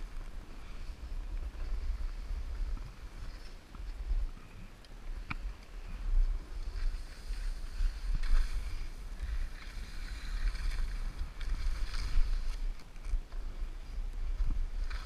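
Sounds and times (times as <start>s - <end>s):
wind buffeting microphone: 0.0s - 15.0s
skis hissing through snow: 5.9s - 12.8s.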